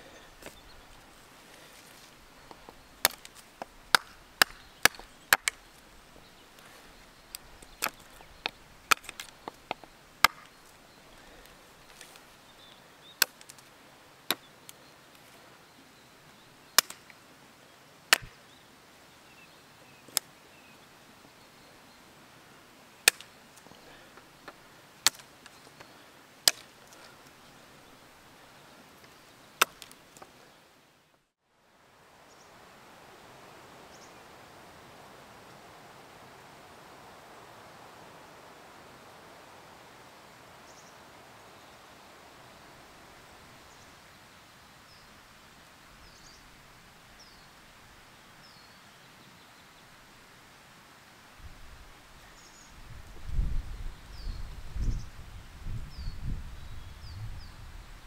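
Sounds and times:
hatchet chopping wood: 0:02.5 - 0:05.6, 0:07.3 - 0:10.5, 0:16.8 - 0:17.0, 0:18.1 - 0:18.3, 0:23.1 - 0:23.3, 0:25.0 - 0:25.3, 0:26.4 - 0:27.0, 0:29.6 - 0:30.0.

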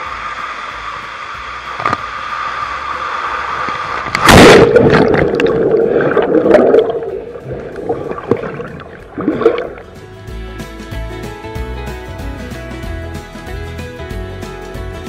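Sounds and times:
water rushing down slide tube: 0:00.0 - 0:09.9
underwater gurgling and bubbling: 0:01.8 - 0:10.0
loud splash into pool: 0:02.3 - 0:09.9.

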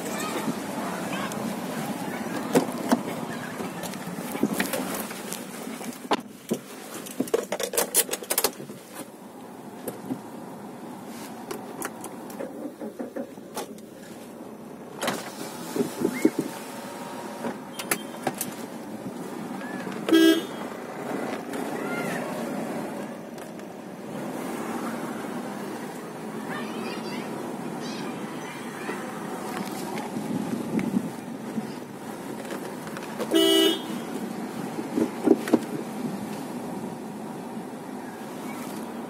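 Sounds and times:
street traffic from inside a car: 0:00.0 - 0:39.0
car horn toot: 0:20.1 - 0:20.8, 0:33.3 - 0:34.2.

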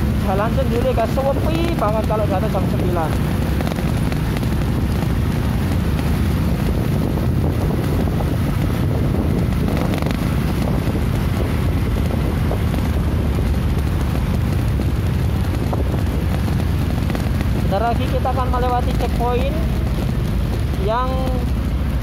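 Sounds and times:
traffic: 0:00.0 - 0:22.0
wind buffeting microphone: 0:00.0 - 0:22.0.

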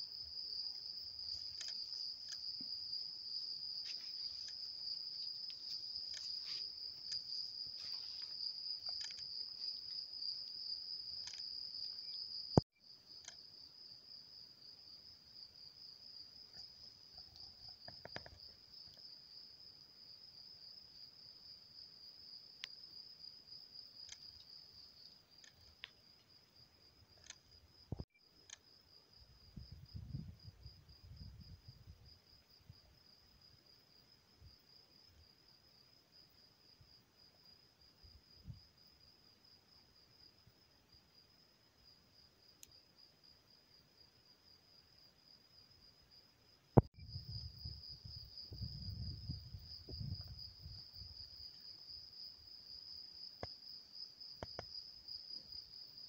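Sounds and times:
crickets trilling: 0:00.0 - 0:46.2, 0:46.8 - 0:56.0
click: 0:01.5 - 0:02.4, 0:04.4 - 0:04.6, 0:07.0 - 0:07.3, 0:08.2 - 0:09.3, 0:11.2 - 0:11.5, 0:13.2 - 0:13.4, 0:24.0 - 0:24.5, 0:25.4 - 0:26.0, 0:27.2 - 0:28.6, 0:54.4 - 0:54.7.

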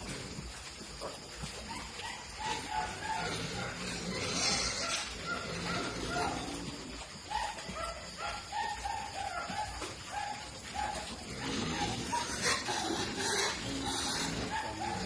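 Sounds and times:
piglets squeaking: 0:11.0 - 0:15.0.

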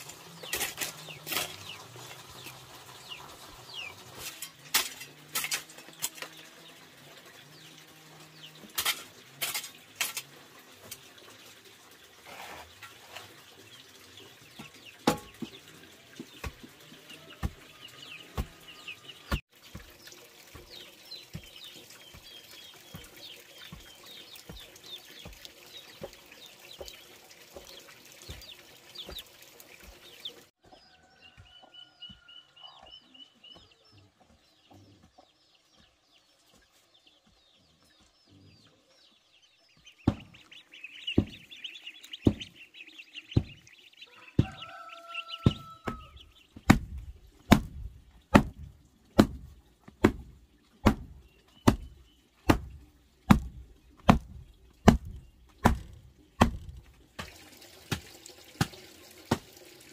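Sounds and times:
birds chirping: 0:00.0 - 0:59.9
chickens clucking: 0:20.2 - 0:38.9, 0:39.6 - 0:48.5.

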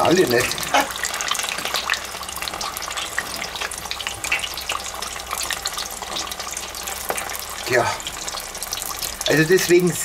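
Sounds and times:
oil bubbling and crackling: 0:00.0 - 0:10.0.

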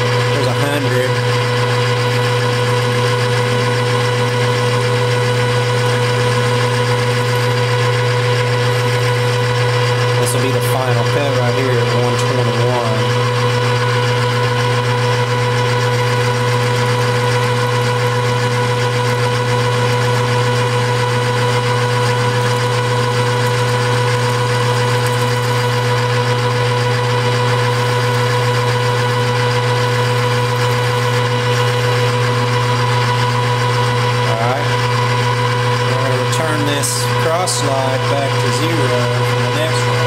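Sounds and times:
metal lathe humming: 0:00.0 - 0:40.0.

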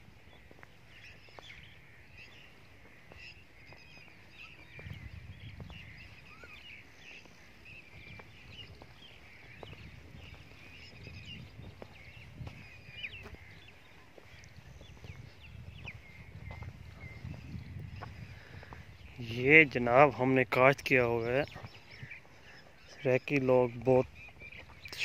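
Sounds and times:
low rumble gusts: 0:00.0 - 0:19.8
footsteps on dirt: 0:00.0 - 0:25.0
small birds chirping: 0:00.0 - 0:25.0.

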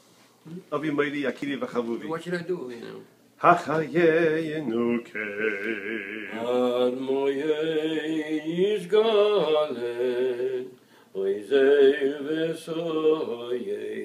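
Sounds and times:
man singing slow melody: 0:03.6 - 0:14.0.

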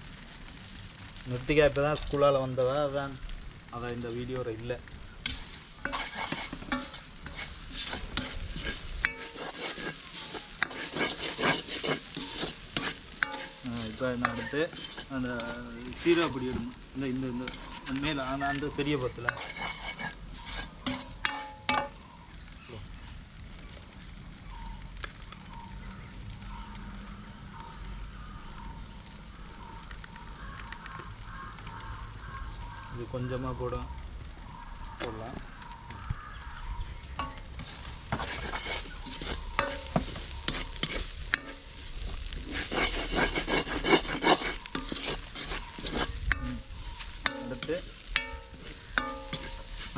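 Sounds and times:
vegetables sizzling in a wok: 0:00.0 - 0:49.9
wood fire crackling: 0:00.0 - 0:49.9
spatula scraping a pan: 0:05.2 - 0:22.0, 0:37.2 - 0:49.9.

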